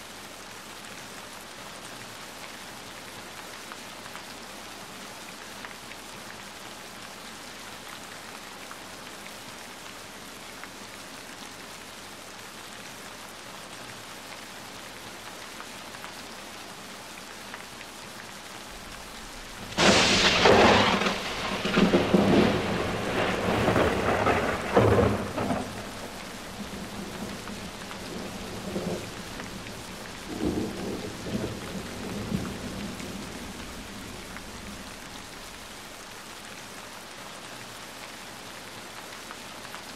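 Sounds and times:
steady rain hiss: 0:00.0 - 0:39.9
thunder rumbling: 0:18.7 - 0:36.0.

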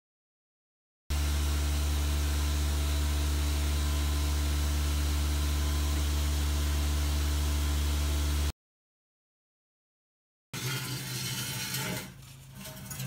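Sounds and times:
low hum with buzz: 0:01.1 - 0:08.5.

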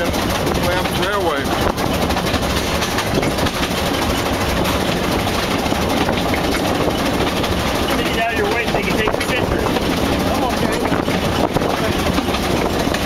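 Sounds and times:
steam train wheels rumbling on rails: 0:00.0 - 0:13.0.

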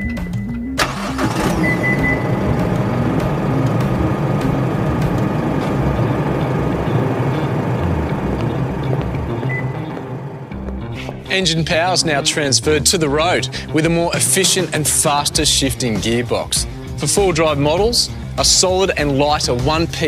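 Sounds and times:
diesel engine starting and idling: 0:00.8 - 0:12.2.

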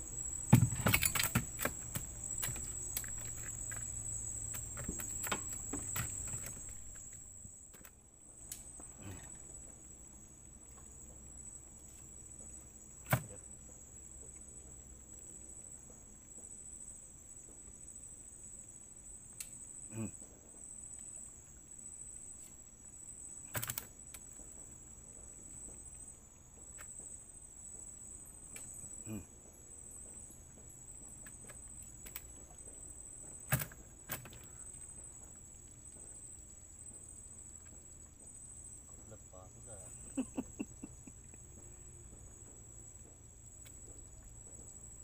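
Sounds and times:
crickets chirping: 0:00.0 - 0:45.0
sharp knocks: 0:00.5 - 0:03.3.

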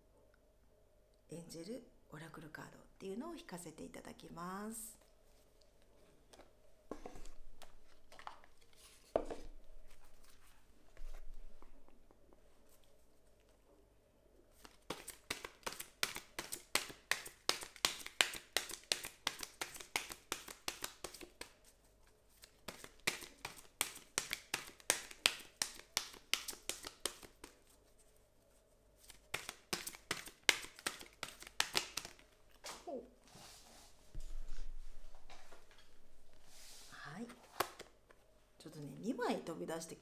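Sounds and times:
cards being shuffled by hand: 0:14.5 - 0:28.1, 0:29.0 - 0:32.9, 0:34.2 - 0:38.2.

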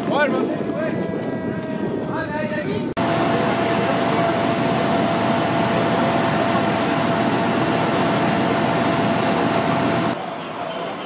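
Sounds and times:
fire engine engine running: 0:03.0 - 0:11.0.

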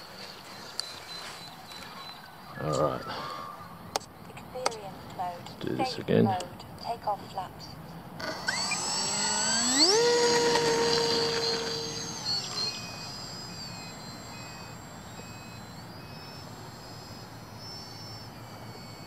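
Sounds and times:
model plane motor whine: 0:08.2 - 0:19.0
short beeps: 0:08.6 - 0:19.0.

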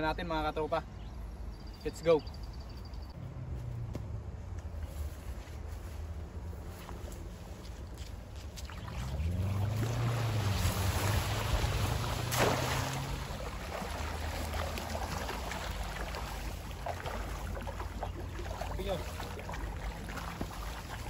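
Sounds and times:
stream running over rocks: 0:08.7 - 0:21.0.

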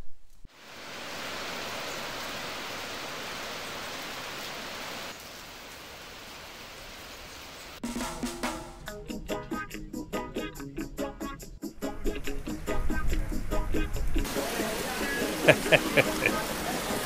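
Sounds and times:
heavy rain falling: 0:00.5 - 0:08.6, 0:14.2 - 0:17.0
music: 0:07.8 - 0:17.0.

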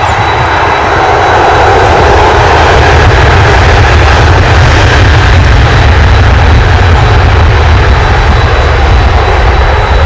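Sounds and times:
jet engines roaring: 0:00.0 - 0:10.0.

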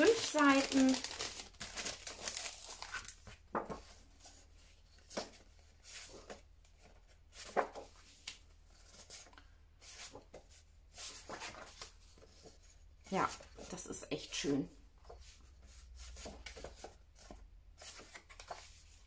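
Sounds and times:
paper rustling and sliding: 0:01.6 - 0:12.7.

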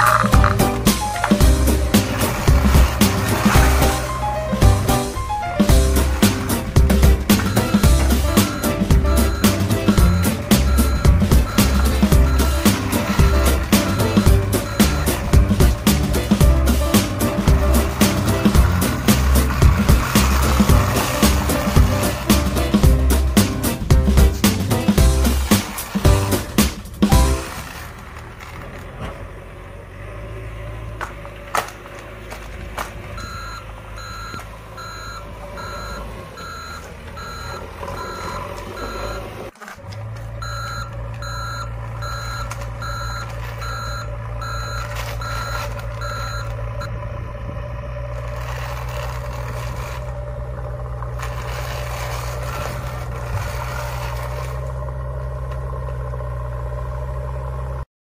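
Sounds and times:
heavy vehicle engine drone: 0:00.0 - 0:57.9
reversing alarm beeping: 0:05.6 - 0:22.7, 0:33.2 - 0:39.5, 0:40.4 - 0:47.0.

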